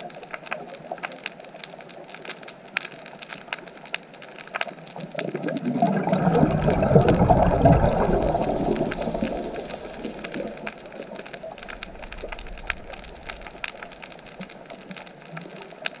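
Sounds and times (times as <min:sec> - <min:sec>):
snapping shrimp crackle: 0:00.0 - 0:05.4, 0:08.5 - 0:16.0
diver exhaling bubbles underwater: 0:05.0 - 0:14.6.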